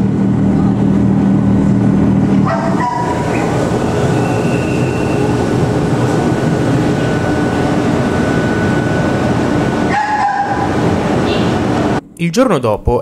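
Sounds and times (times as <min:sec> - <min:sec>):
train wheels rumbling: 0:00.0 - 0:12.0
thin high tone: 0:02.7 - 0:12.2.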